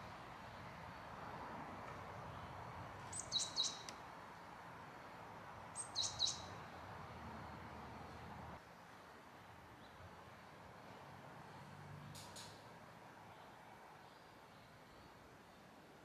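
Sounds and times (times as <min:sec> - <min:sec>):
faint outdoor hiss: 0:00.0 - 0:16.0
small bird chirping: 0:03.1 - 0:04.0, 0:05.8 - 0:06.6.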